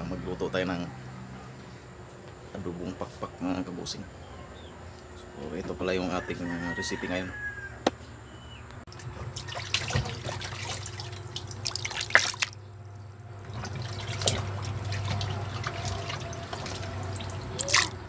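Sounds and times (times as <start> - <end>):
water splashing in plastic basin: 8.9 - 12.6, 13.4 - 18.0.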